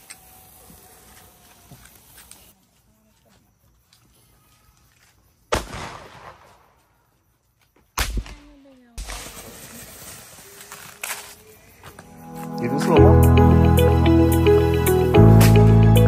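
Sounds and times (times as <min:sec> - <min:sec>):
firework spraying sparks hissing: 0:00.0 - 0:02.5, 0:08.9 - 0:12.6
firecracker bangs: 0:05.5 - 0:06.8.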